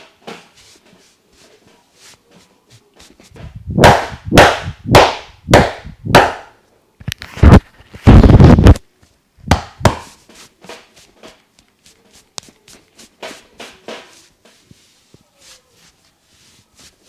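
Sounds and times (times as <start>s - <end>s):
hands slapping a head: 9.5s - 11.7s.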